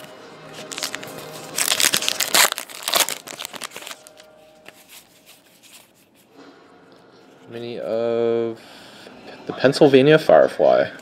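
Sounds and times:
trading cards and foil wrappers rustling: 0.0s - 6.3s.

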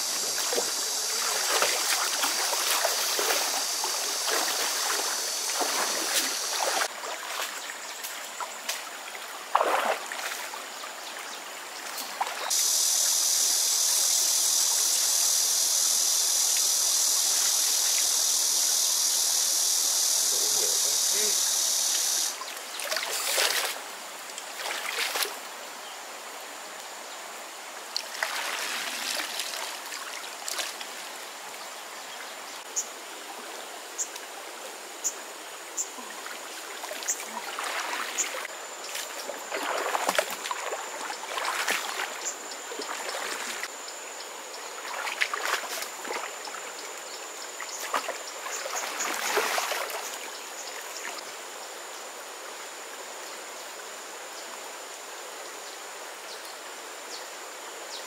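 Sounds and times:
water splashing and sloshing: 0.0s - 12.6s, 22.4s - 25.5s, 27.9s - 31.6s, 35.8s - 43.7s, 44.7s - 47.0s, 47.6s - 51.2s
creek water flowing: 0.0s - 57.9s.

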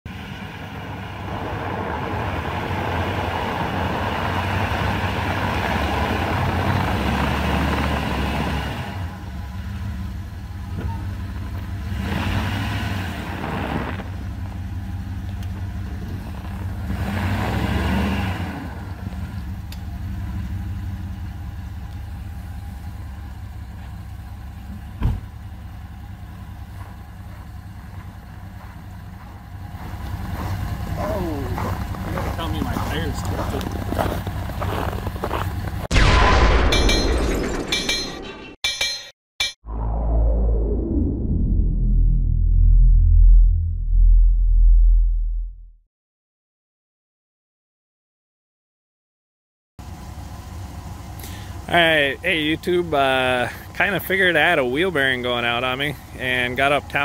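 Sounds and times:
truck engine under load: 0.1s - 35.9s, 49.8s - 57.0s
sharp thump: 25.0s - 25.3s.

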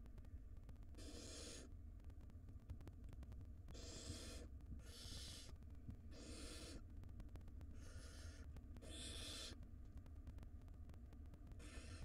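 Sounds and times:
owl nestlings hissing: 1.0s - 1.7s, 6.1s - 6.8s, 7.8s - 9.6s.

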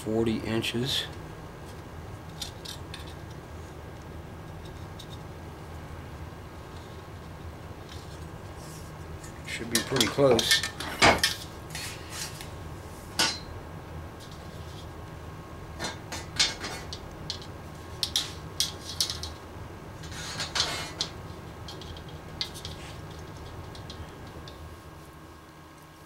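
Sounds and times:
low steady hum: 0.0s - 26.0s
scraping rustle: 20.0s - 21.1s.

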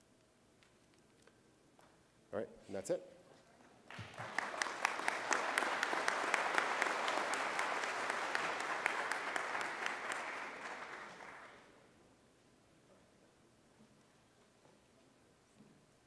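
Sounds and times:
audience applauding: 3.9s - 11.8s.

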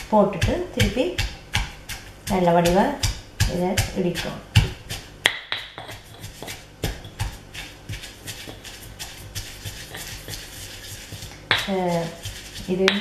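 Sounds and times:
pestle pounding in stone mortar: 0.0s - 13.0s.

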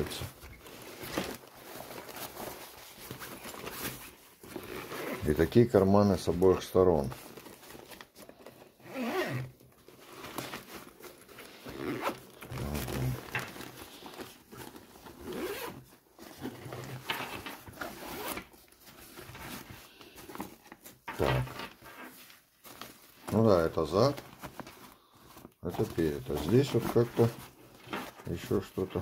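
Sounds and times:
fabric bag rustling: 0.0s - 29.0s
zippers pulled open and shut: 4.5s - 5.3s, 8.8s - 10.3s, 11.6s - 13.3s, 15.1s - 15.8s, 16.4s - 18.4s.

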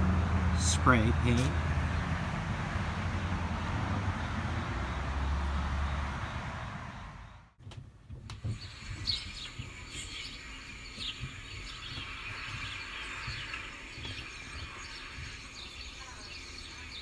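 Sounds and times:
small birds chirping: 8.3s - 17.0s.

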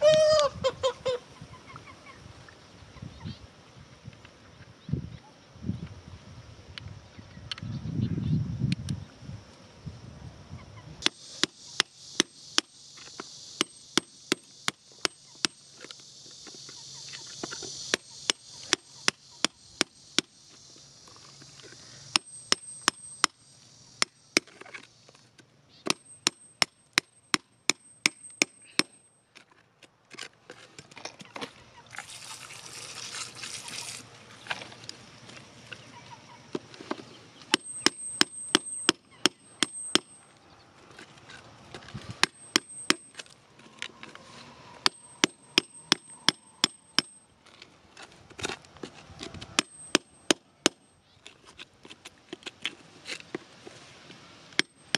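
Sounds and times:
metal tool clicking on stones: 37.5s - 40.2s, 42.2s - 43.4s.

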